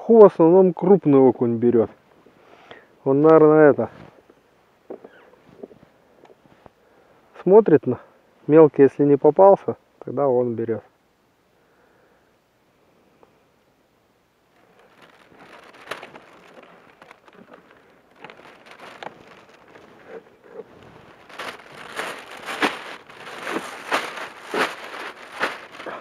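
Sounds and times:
plastic bag crinkling: 14.5 - 26.0.

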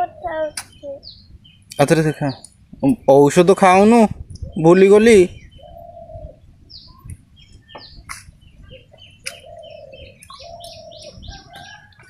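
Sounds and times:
dove cooing: 0.0 - 1.1, 5.3 - 6.5, 8.6 - 12.0
small birds chirping: 0.0 - 12.0.

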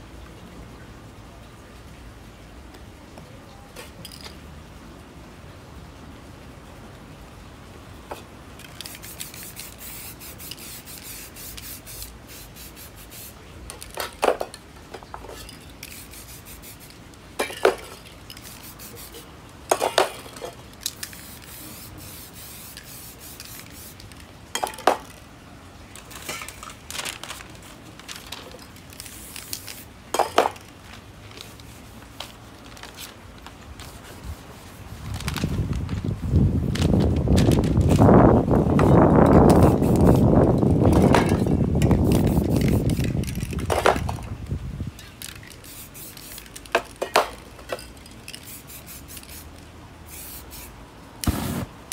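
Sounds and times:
spray paint can hissing: 8.6 - 14.1, 15.4 - 25.2, 28.9 - 30.6, 38.8 - 43.6, 45.0 - 47.4, 48.2 - 51.9
metal cans clinking: 17.4 - 18.5, 19.7 - 21.2, 24.5 - 25.2, 26.0 - 27.1, 28.3 - 30.7, 46.2 - 48.6.

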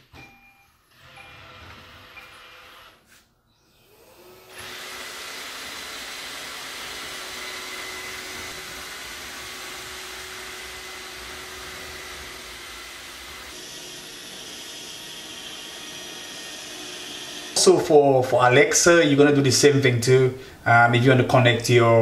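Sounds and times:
robot vacuum running: 3.8 - 18.1.

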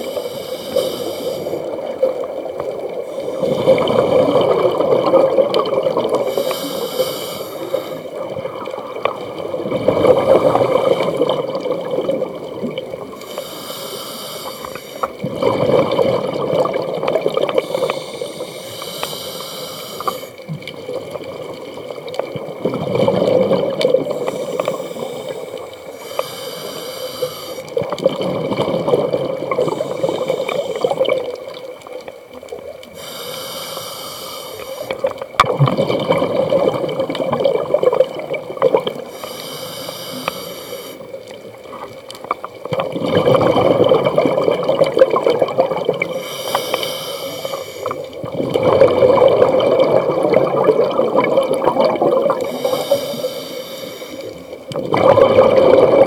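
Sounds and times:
regulator hissing on inhale: 0.0 - 1.9, 3.0 - 3.8, 6.2 - 8.2, 13.1 - 15.2, 17.6 - 20.5, 24.0 - 27.8, 29.4 - 31.3, 32.9 - 35.1, 39.0 - 41.1, 46.0 - 48.2, 52.3 - 54.6
exhaled bubbles rushing: 1.5 - 6.4, 7.7 - 13.2, 15.1 - 18.3, 20.4 - 25.7, 27.6 - 32.0, 34.9 - 39.1, 41.1 - 46.2, 47.4 - 53.3, 54.2 - 56.0.

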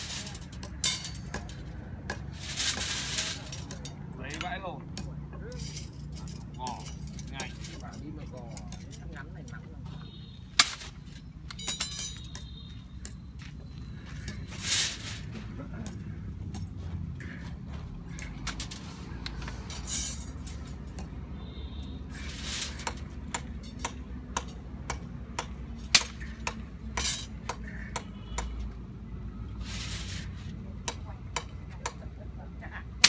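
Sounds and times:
metal bar clinks and knocks: 0.3 - 9.6, 10.6 - 13.3.

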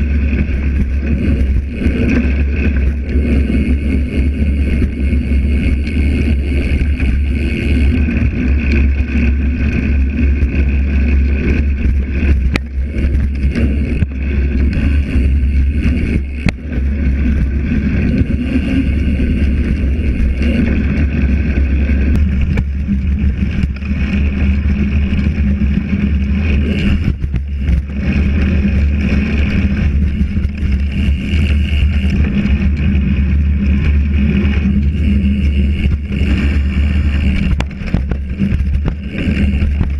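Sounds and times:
bike tyre rumble on dirt: 0.0 - 39.9
bike knocking over bumps: 37.1 - 39.9.

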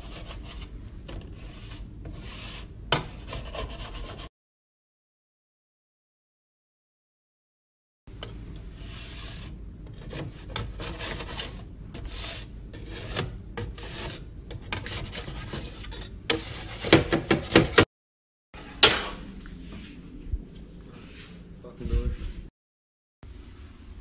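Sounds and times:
spatula scraping metal baking sheet: 0.0 - 4.3, 8.7 - 17.8.

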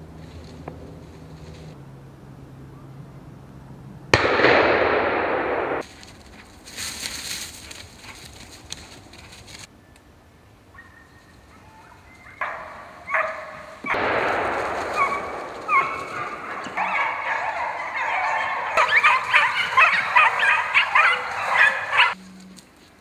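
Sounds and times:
dogs yelping and baying: 10.8 - 14.0, 14.8 - 22.2.

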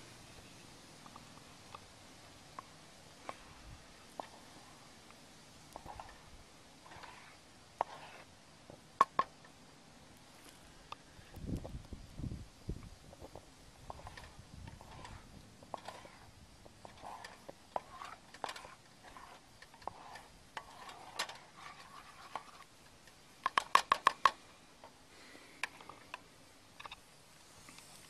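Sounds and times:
metal spatula scraping a pot: 13.9 - 22.7.

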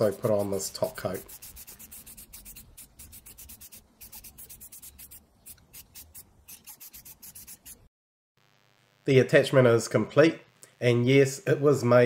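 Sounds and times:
spray can hissing bursts: 0.0 - 7.9.

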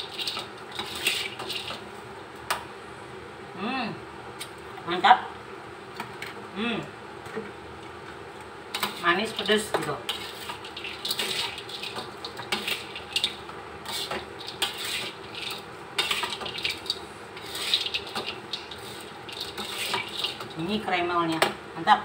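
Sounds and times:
spatula scraping wok: 0.0 - 1.9, 8.7 - 20.9
crunchy rustling of fried food: 10.1 - 20.6.

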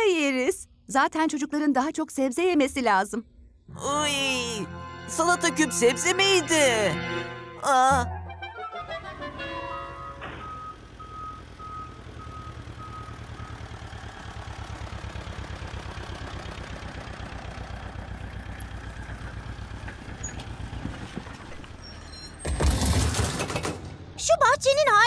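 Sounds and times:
tractor engine chugging: 9.1 - 25.0
reversing alarm beeping: 9.7 - 14.0
loud crash: 22.4 - 24.2.

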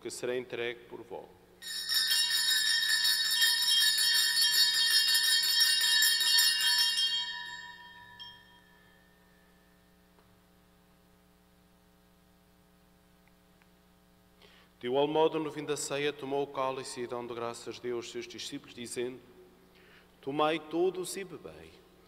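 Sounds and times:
altar bells jangling: 1.6 - 9.3.

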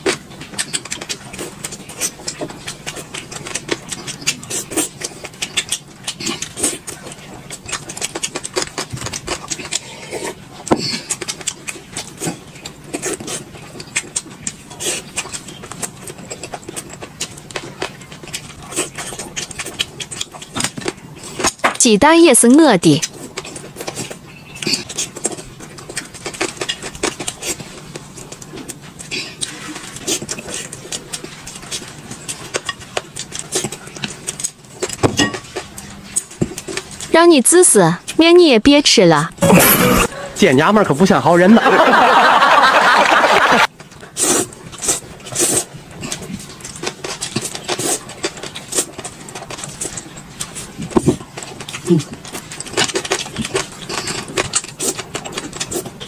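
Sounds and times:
mouth clicks and smacks: 0.0 - 21.6
egg being bitten and chewed: 0.0 - 21.8, 23.0 - 37.1, 43.7 - 56.0
noodles being slurped: 44.0 - 56.0.

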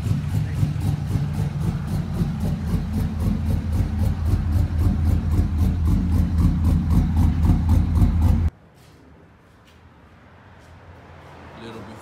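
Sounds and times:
truck engine idling with lope: 0.0 - 8.5.

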